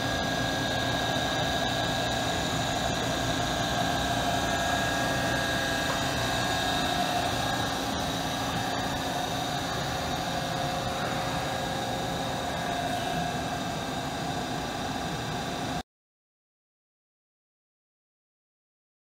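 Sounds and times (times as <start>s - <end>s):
machine whining tones: 0.0s - 15.8s
machinery drone: 0.0s - 15.8s.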